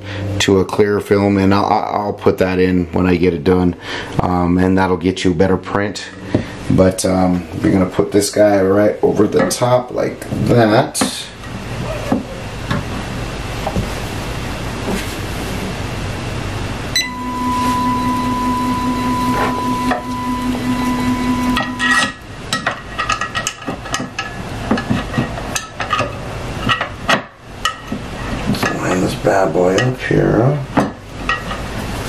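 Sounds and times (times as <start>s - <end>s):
machine whine: 15.7s - 22.4s
parts clicking and knocking: 21.5s - 29.1s.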